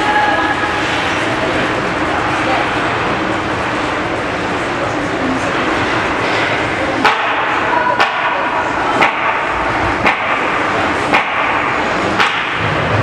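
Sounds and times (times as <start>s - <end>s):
ice arena background noise: 0.0s - 13.0s
sharp knock: 10.0s - 10.5s, 11.1s - 12.9s.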